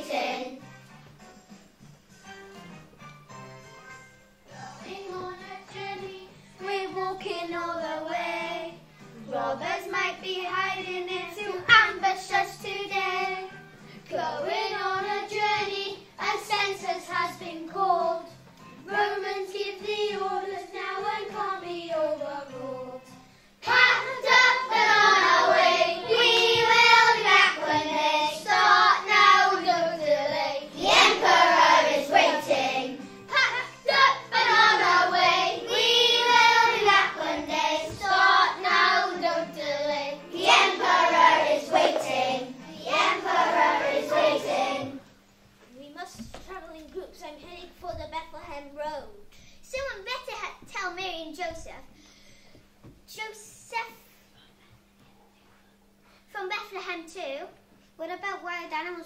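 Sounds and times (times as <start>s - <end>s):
children singing together: 0.0s - 0.6s, 14.1s - 45.0s.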